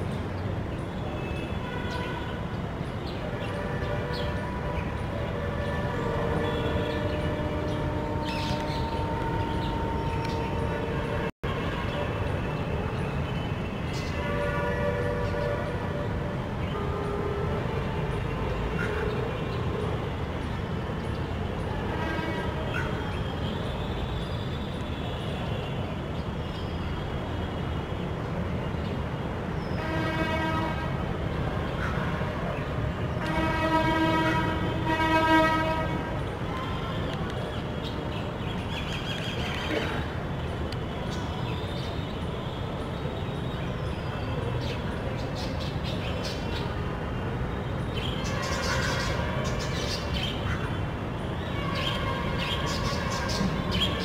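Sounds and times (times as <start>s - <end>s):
long horn blast: 3.4s - 12.2s, 14.1s - 19.4s, 29.7s - 31.2s, 33.1s - 37.1s
birds chirping and squawking: 48.0s - 50.8s, 51.6s - 54.0s.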